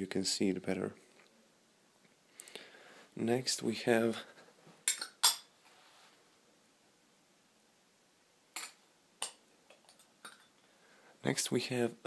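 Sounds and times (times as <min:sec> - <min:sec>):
glass petri dishes clinking: 0:08.6 - 0:10.5.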